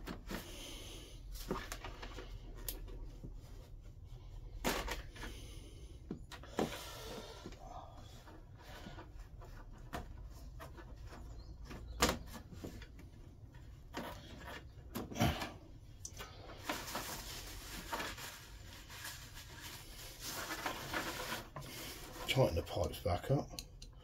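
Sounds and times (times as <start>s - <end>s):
rustling: 6.4s - 22.6s.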